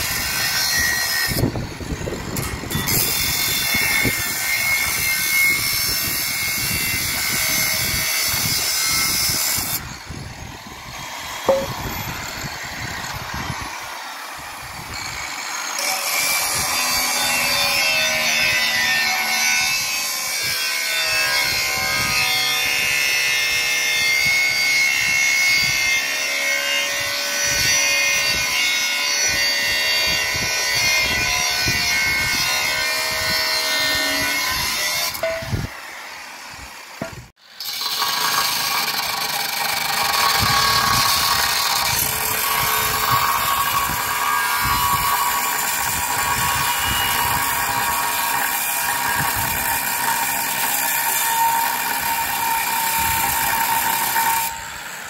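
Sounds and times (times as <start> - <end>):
angle grinder cutting steel: 0.0 - 55.0.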